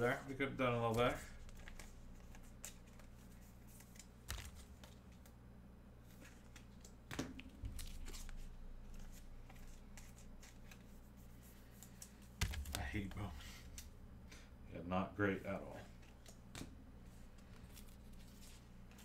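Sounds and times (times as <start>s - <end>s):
steady low hum: 0.0s - 19.0s
cards and foil wrappers rustling: 17.3s - 19.0s.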